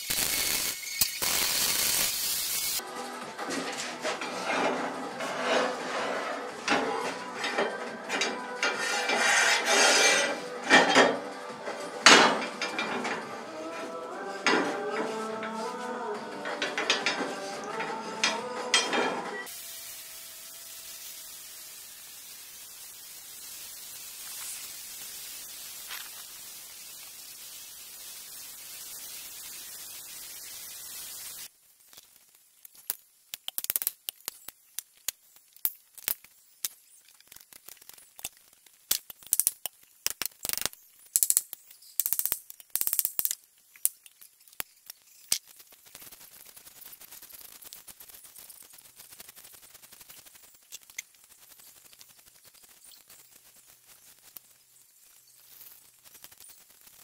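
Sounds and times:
steady hiss: 0:00.0 - 0:03.2, 0:05.4 - 0:57.0
broom sweeping concrete: 0:00.1 - 0:31.5.

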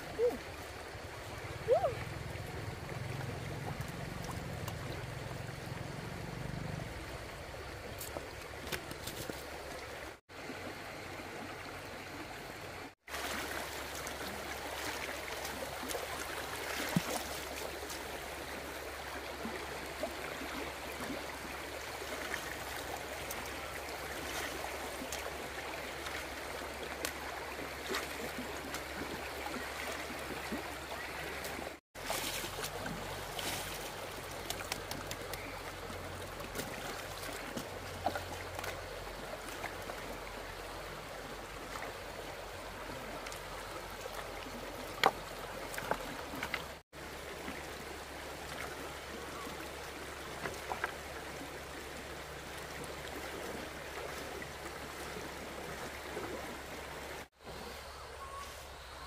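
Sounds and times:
water rushing: 0:00.0 - 0:59.0
light clicks and splashes: 0:02.4 - 0:05.4, 0:07.8 - 0:10.1, 0:13.2 - 0:18.3, 0:22.0 - 0:40.5, 0:41.4 - 0:46.8, 0:48.4 - 0:51.5.

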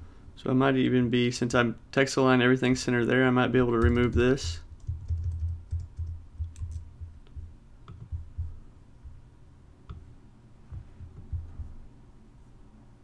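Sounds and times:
computer keyboard and mouse clicks: 0:03.8 - 0:08.5
soft low thuds: 0:03.8 - 0:09.3, 0:10.7 - 0:11.9.

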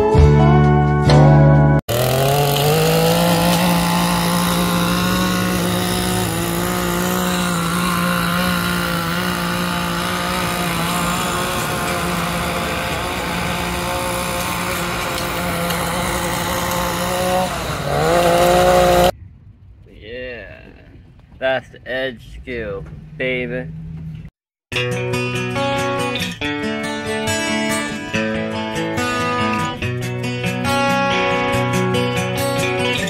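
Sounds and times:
string trimmer engine revving: 0:01.9 - 0:19.1.

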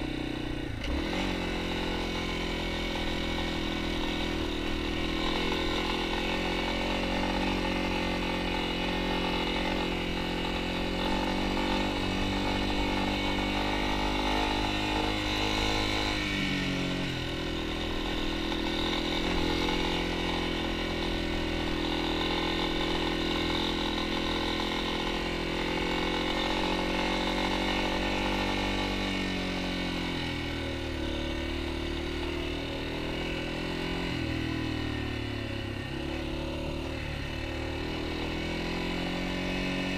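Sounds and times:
motorcycle engine running: 0:00.0 - 0:39.9.

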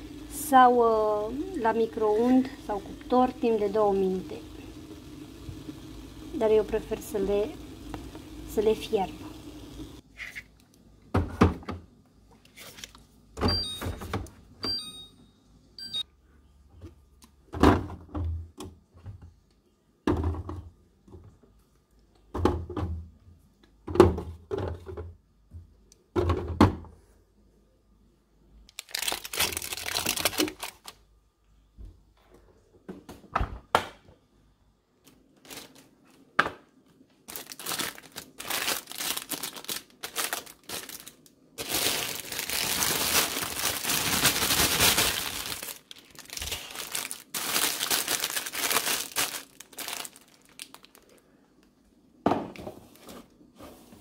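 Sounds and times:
plastic wrapper crinkling: 0:28.7 - 0:31.0, 0:35.4 - 0:36.1, 0:37.2 - 0:51.3
plastic bottles knocking on shelves: 0:52.2 - 0:52.7.

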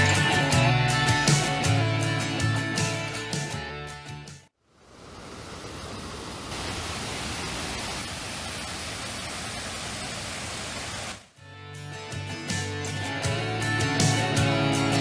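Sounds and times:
water rushing over rocks: 0:04.9 - 0:11.3.

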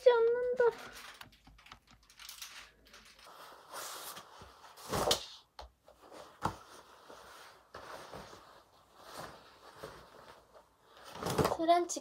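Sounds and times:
soft rustling: 0:05.8 - 0:11.6.

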